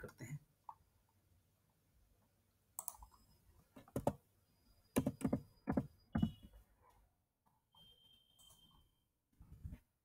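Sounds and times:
keyboard and mouse clicks: 2.8 - 4.2, 5.0 - 6.3.

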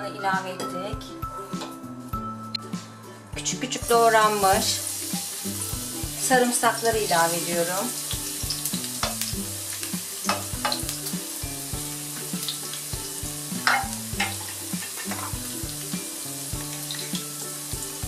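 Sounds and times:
garlic sizzling in oil: 4.0 - 18.0.

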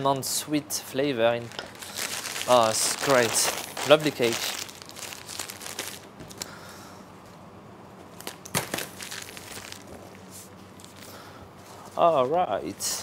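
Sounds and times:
plastic bag crinkling: 1.4 - 6.5, 8.2 - 11.2.

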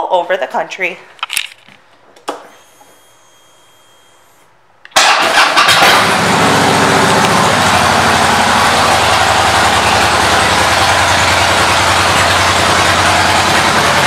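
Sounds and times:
motorcycle engine idling: 6.1 - 14.0.

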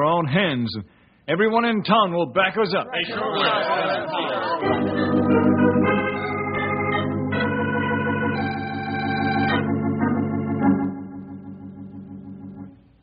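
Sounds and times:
sustained organ chords: 4.4 - 13.0.

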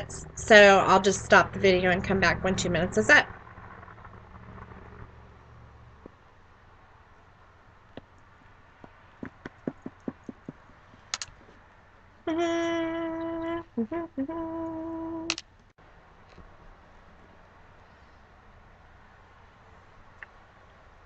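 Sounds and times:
woman humming: 12.3 - 15.4.

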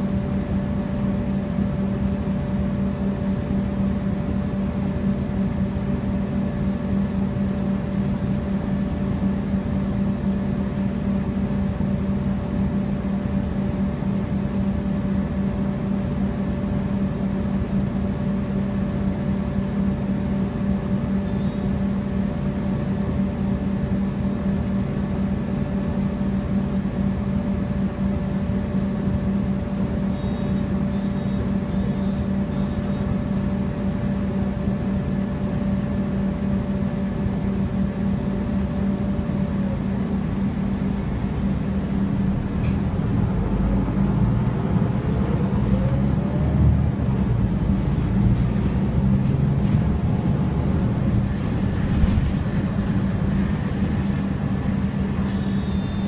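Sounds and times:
bus engine idling: 0.0 - 56.0
bus engine revving pulling away: 42.4 - 53.8.

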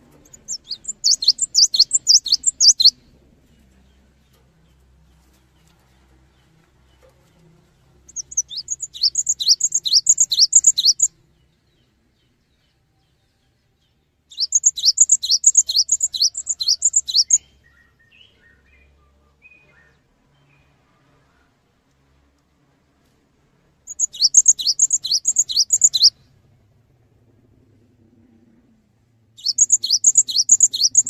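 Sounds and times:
bird singing rapid high notes: 0.2 - 3.0, 8.1 - 11.1, 14.3 - 17.5, 23.9 - 26.1, 29.4 - 31.0.

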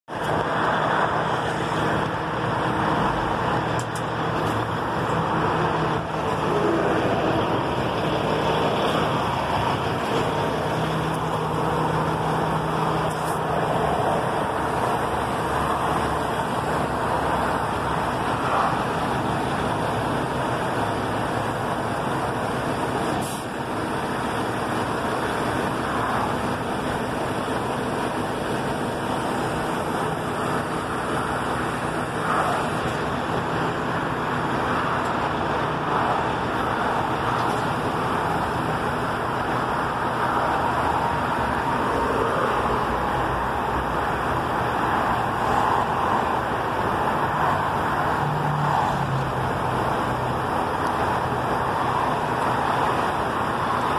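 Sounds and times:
road and traffic noise: 0.0 - 53.9
truck engine hum: 0.0 - 53.9.

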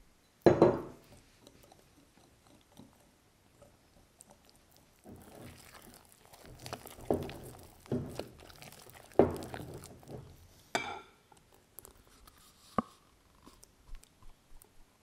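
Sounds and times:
whisk stirring thick batter: 1.0 - 10.8.

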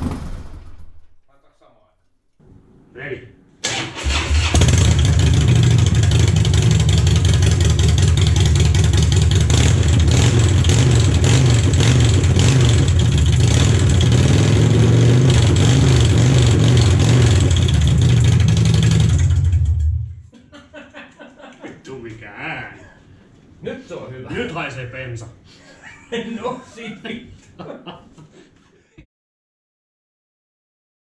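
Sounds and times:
loud motorcycle engine running: 4.0 - 20.2.

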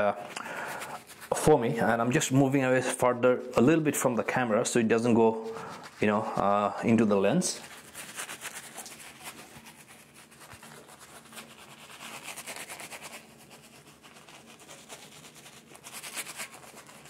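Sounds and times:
shaving brush swishing on skin: 7.0 - 17.0.

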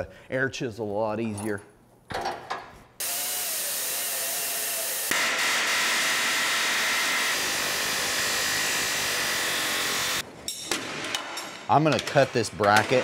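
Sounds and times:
grinder cutting steel whine: 3.0 - 10.2.

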